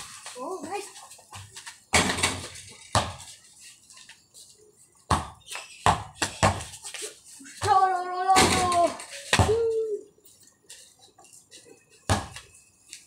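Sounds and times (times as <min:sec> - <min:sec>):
basketball bouncing on concrete: 0:01.4 - 0:03.3, 0:05.1 - 0:06.8, 0:12.1 - 0:12.5.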